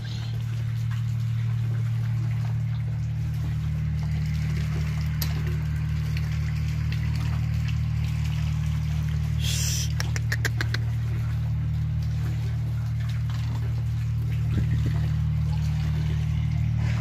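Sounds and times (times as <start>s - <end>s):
low electric motor hum: 0.0s - 17.0s.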